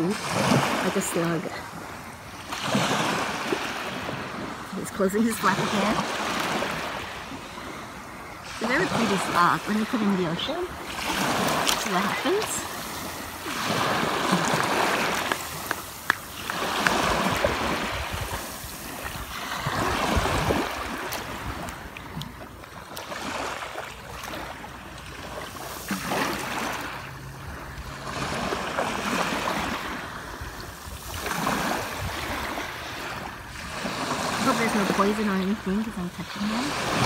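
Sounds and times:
waves washing over sand: 0.0 - 37.0.

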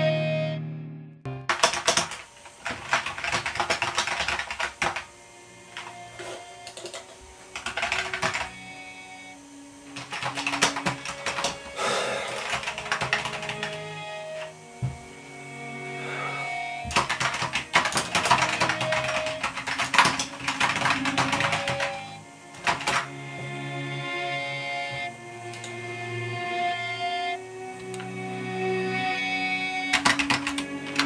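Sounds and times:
keyboard typing: 1.4 - 5.1, 5.8 - 8.7, 9.9 - 15.0, 16.8 - 23.1, 25.0 - 25.8, 29.8 - 31.0.

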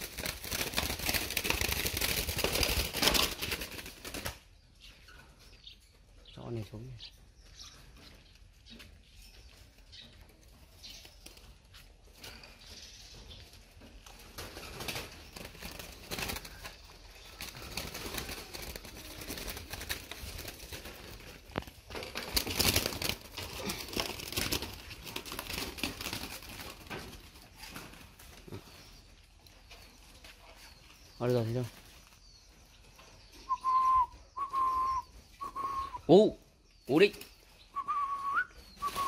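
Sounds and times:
rustling and scraping: 7.5 - 33.6
doves cooing: 37.8 - 39.0.

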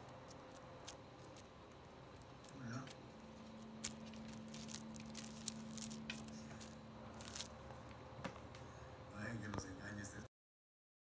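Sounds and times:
faint steady hum: 0.0 - 10.3
kitten batting string rustles: 2.2 - 7.7.

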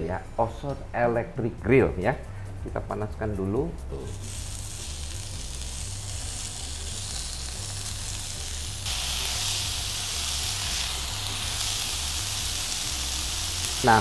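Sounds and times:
meat sizzling on a grill: 4.0 - 14.0.

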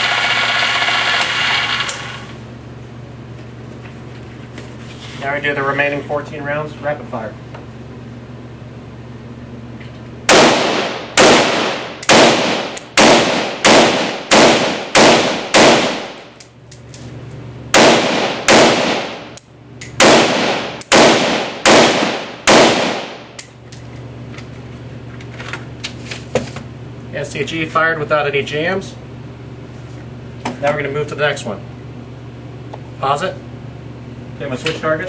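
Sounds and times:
rifle shots echoing indoors: 10.3 - 16.4, 17.7 - 19.3, 20.0 - 23.3.

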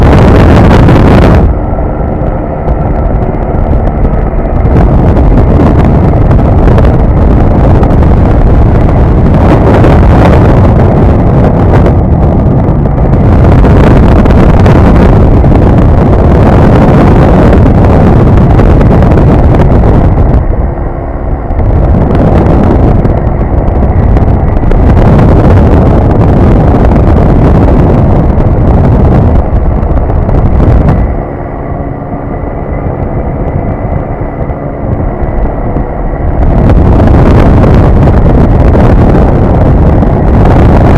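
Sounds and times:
aircraft engine droning: 0.0 - 40.9
heavy wind buffeting microphone: 0.0 - 40.9.

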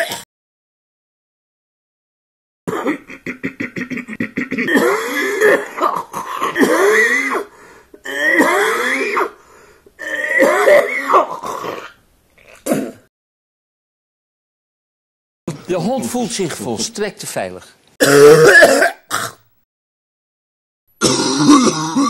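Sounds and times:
throaty vocal grunts: 18.0 - 19.4, 21.0 - 22.0.

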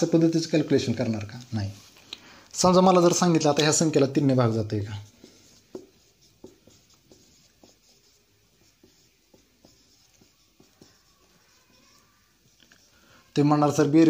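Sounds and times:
marker tapping and scratching whiteboard: 2.6 - 13.0.

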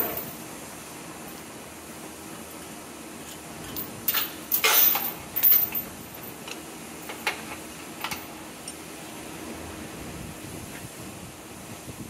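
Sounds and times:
metal chain clinking and rattling: 0.0 - 0.4, 3.6 - 7.4.

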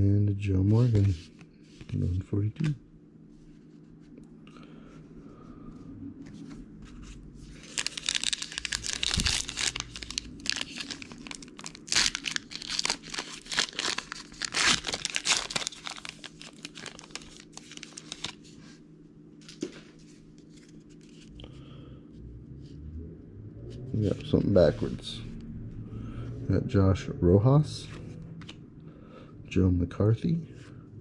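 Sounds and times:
card pack wrapper tearing and crinkling: 7.6 - 18.5.

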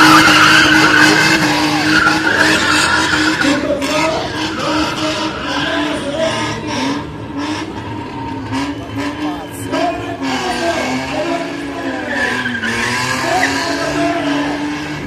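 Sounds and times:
car engine revving: 0.0 - 15.0
tyres squealing on asphalt: 0.0 - 15.0.

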